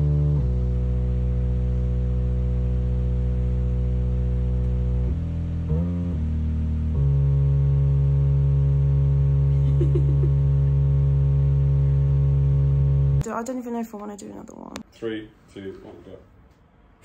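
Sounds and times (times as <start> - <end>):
electronic keyboard chord: 0.0 - 13.2.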